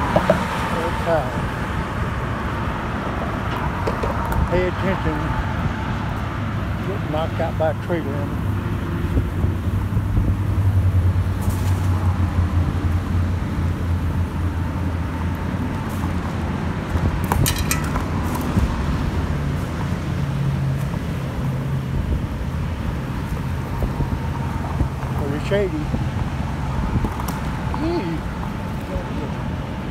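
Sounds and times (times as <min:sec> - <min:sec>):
highway traffic rumble: 0:00.0 - 0:29.9.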